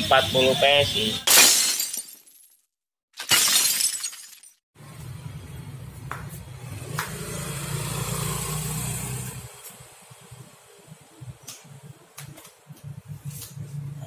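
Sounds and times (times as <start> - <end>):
glass shattering: 1.3 - 2.6, 3.2 - 4.6
low workshop hum: 9.3 - 14.0.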